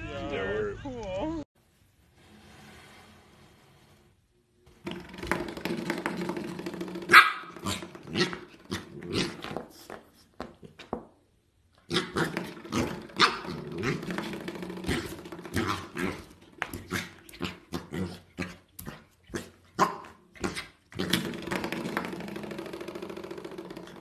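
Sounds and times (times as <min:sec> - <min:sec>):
puppy growling: 0:05.3 - 0:09.7, 0:11.9 - 0:22.8
puppy yapping: 0:07.1 - 0:09.4.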